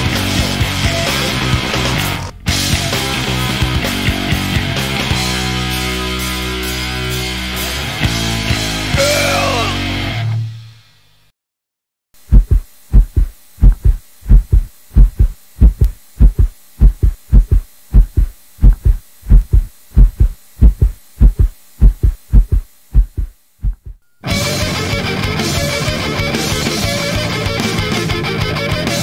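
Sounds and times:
rock music: 0.0s - 10.7s, 24.2s - 29.0s
heartbeat thumping: 12.2s - 24.0s.

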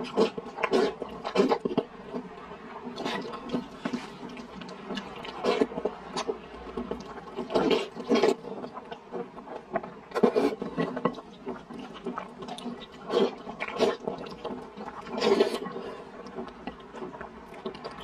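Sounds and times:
person slurping noodles: 0.0s - 1.8s, 2.9s - 6.3s, 7.0s - 9.2s, 10.1s - 16.5s
chewing and mouth sounds: 0.0s - 18.0s.

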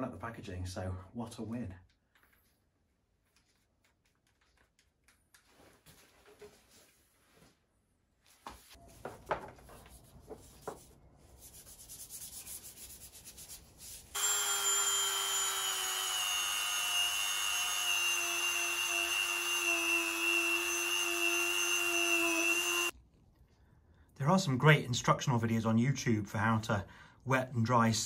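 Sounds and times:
rotary tool whining: 14.2s - 22.9s.

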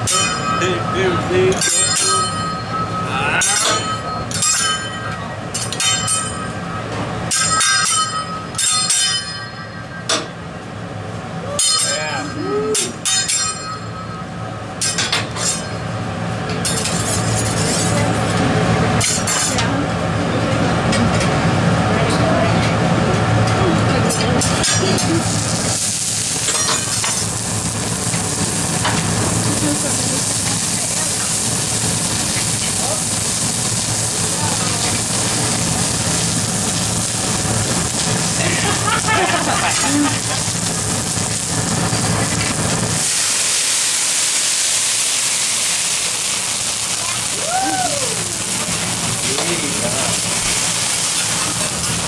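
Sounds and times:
food sizzling on a griddle: 16.7s - 19.7s, 24.4s - 52.0s.

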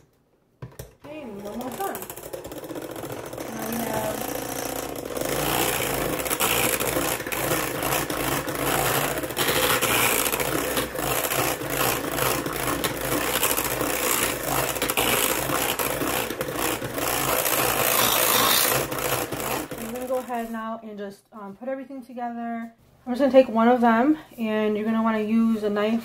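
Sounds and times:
electric hand mixer running: 1.3s - 20.5s.

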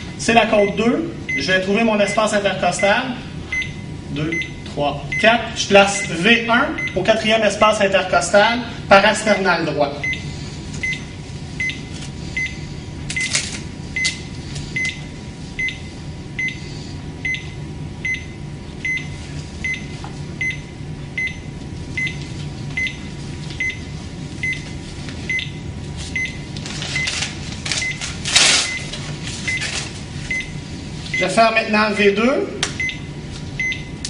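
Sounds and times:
cardiac monitor beeping: 0.0s - 34.0s
steady low hum: 0.0s - 34.0s.

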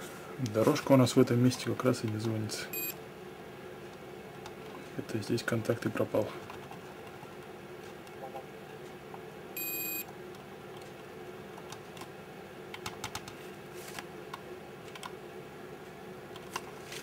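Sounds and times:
multimeter beep: 2.7s - 3.0s, 9.6s - 10.1s.

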